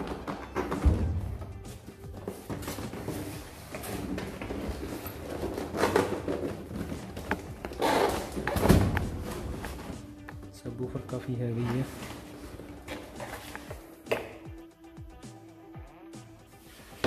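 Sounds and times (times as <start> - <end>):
box thud: 0.0 - 1.6, 8.2 - 9.9
cardboard flaps scraping and rustling: 2.1 - 10.1.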